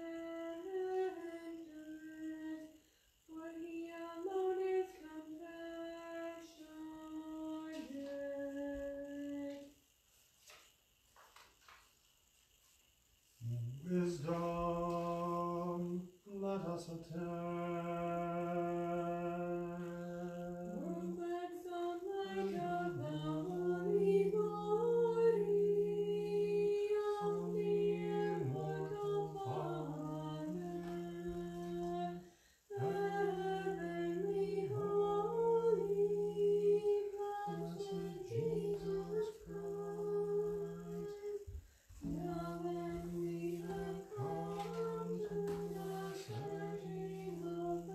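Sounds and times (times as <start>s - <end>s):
voice singing a chant melody: 13.4s - 47.9s.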